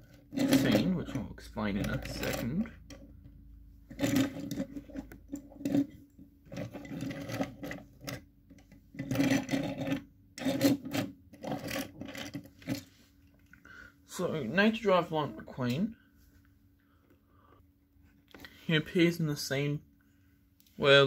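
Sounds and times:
toy cars rolling on wood: 0.0s - 3.1s, 3.9s - 12.9s.

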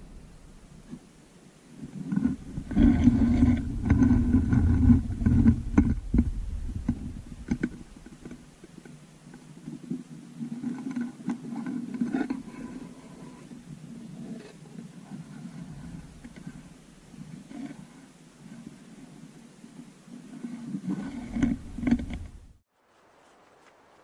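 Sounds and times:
camera handling rumble and rustling: 1.8s - 13.5s, 20.5s - 22.5s.

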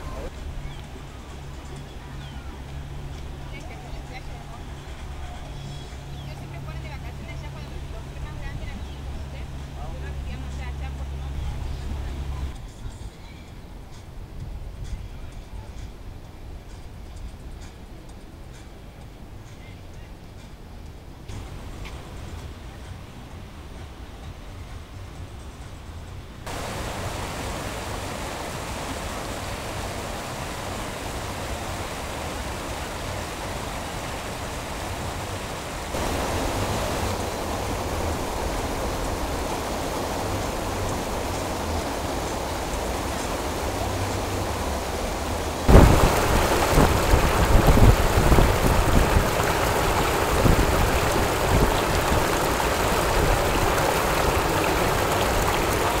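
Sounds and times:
water rushing over weir: 0.0s - 12.6s, 26.4s - 56.0s
low bumps: 35.8s - 56.0s.

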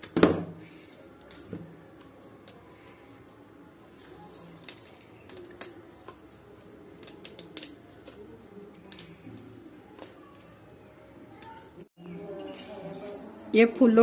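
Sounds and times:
rose petals clicking and rustling: 3.8s - 10.6s.

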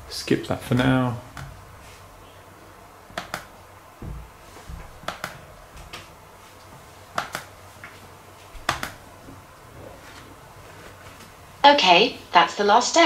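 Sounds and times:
laptop touchpad clicks: 3.2s - 3.5s, 7.2s - 7.5s, 8.7s - 9.0s
soft low thumps: 4.0s - 5.9s.

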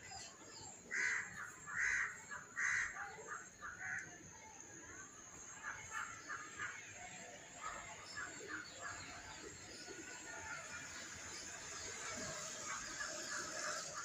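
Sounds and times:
crow cawing: 0.9s - 4.0s.

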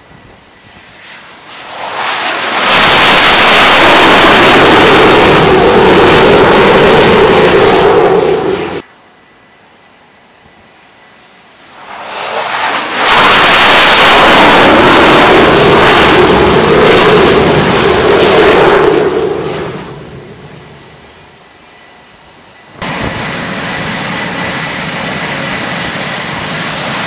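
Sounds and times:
jet engines roaring: 0.0s - 8.9s, 11.2s - 21.4s, 22.7s - 27.0s.

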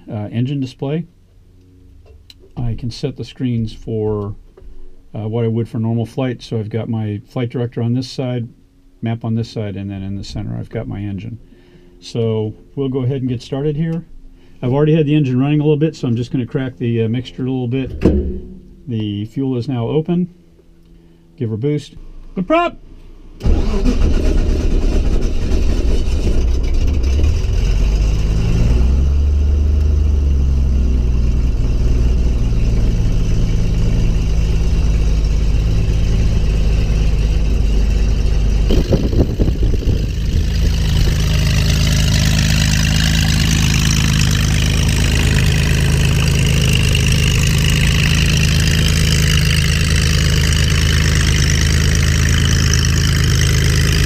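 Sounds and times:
knocks: 17.9s - 19.0s
aircraft engine starter cranking: 23.4s - 28.0s
aircraft engine idling: 29.8s - 54.0s.

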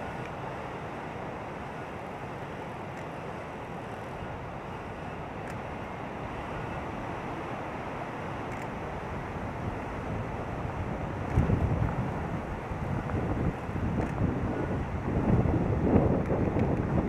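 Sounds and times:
rushing outdoor ambience: 0.0s - 17.0s
faint clicks: 2.9s - 3.2s, 8.5s - 8.7s.

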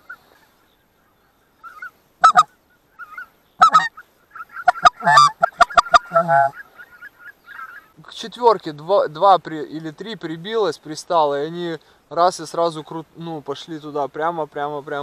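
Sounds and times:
goose honking: 1.6s - 7.9s.

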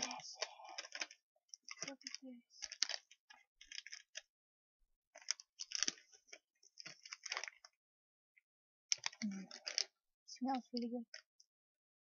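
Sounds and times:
wrapper crinkling: 0.0s - 4.2s, 5.2s - 7.7s, 8.9s - 9.9s.

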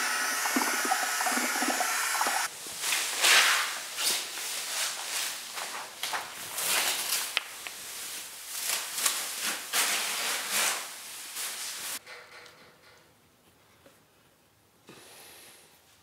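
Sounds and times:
plastic sheeting rustling: 2.5s - 12.0s.

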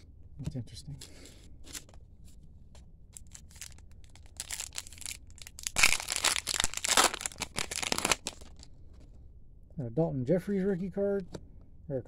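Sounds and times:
foil wrapper crinkling: 3.2s - 8.7s
foil wrapper tearing: 3.2s - 8.7s.

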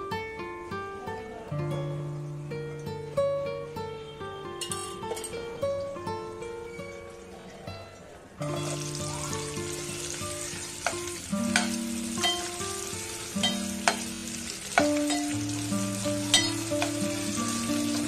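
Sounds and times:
onions sizzling in oil: 8.4s - 18.0s.

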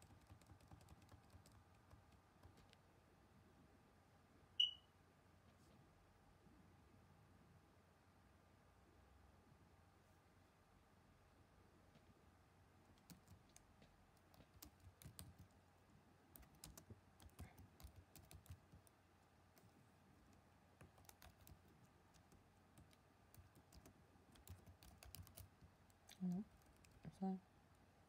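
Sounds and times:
typing on laptop keyboard: 0.0s - 2.8s, 12.9s - 15.6s, 16.3s - 19.7s, 20.3s - 27.1s.

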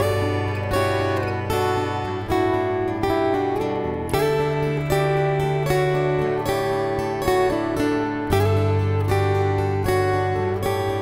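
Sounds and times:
acoustic guitar strumming chords: 0.0s - 11.0s.

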